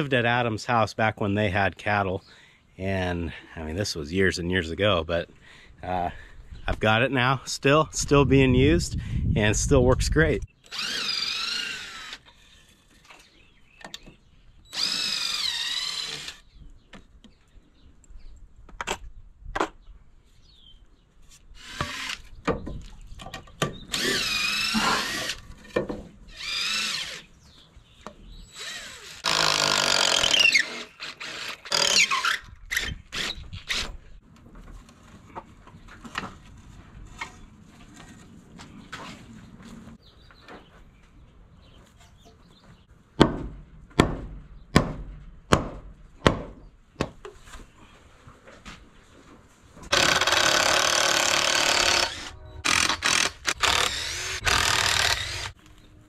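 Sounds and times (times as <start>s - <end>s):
cordless drill squealing: 10.6s - 12.7s, 14.7s - 16.4s, 21.6s - 22.3s, 23.9s - 25.4s, 26.3s - 27.3s, 28.4s - 33.9s, 49.9s - 55.6s.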